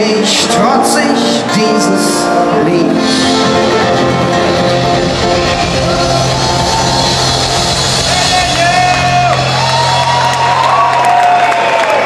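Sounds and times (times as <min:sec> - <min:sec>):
rock band holding chord: 0:00.8 - 0:11.5
steady bass note: 0:03.3 - 0:09.8
crowd shouting and whooping: 0:04.3 - 0:12.0.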